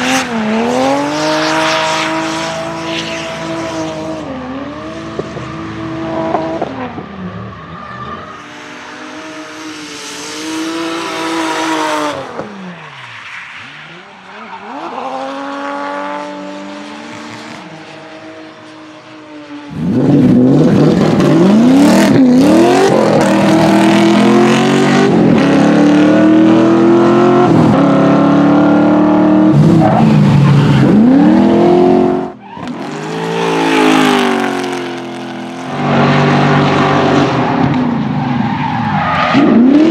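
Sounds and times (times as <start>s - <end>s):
car engine revving: 19.4s - 38.2s.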